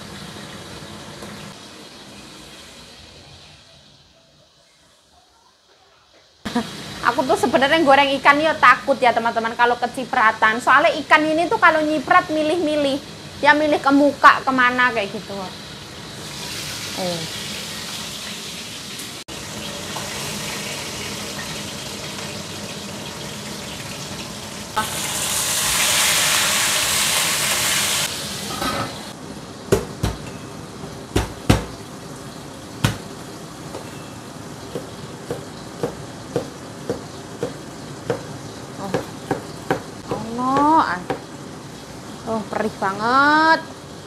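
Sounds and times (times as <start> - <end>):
fish frying in hot oil: 0.0 - 4.0, 6.5 - 29.6, 30.3 - 44.0
sharp knocks: 31.2 - 31.8
cleaver chopping on wooden board: 39.0 - 41.2.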